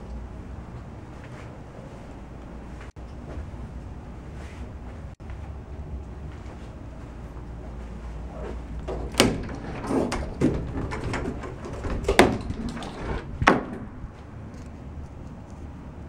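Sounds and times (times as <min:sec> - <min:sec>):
closet door knocks and clatters: 0:08.8 - 0:14.0.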